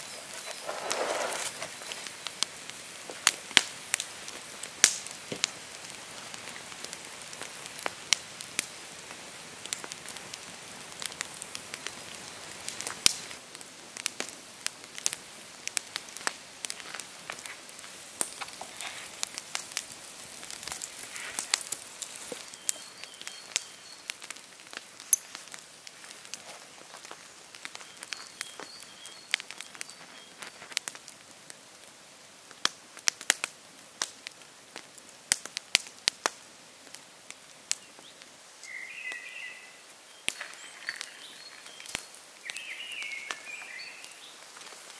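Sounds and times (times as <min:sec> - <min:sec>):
wood fire crackling and popping: 0:00.0 - 0:44.9.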